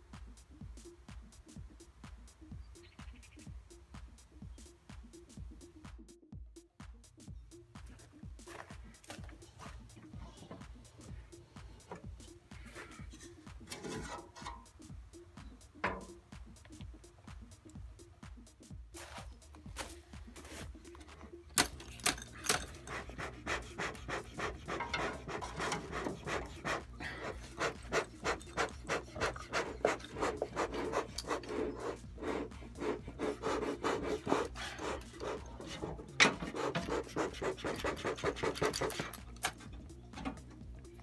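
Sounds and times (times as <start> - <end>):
smoker bellows puffing air: 8.4 - 16.7, 20.2 - 40.6.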